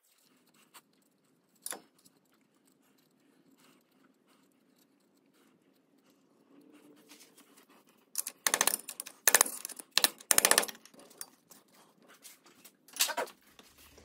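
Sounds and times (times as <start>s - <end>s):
rapid metallic clicking of hand tool: 8.2s - 11.4s.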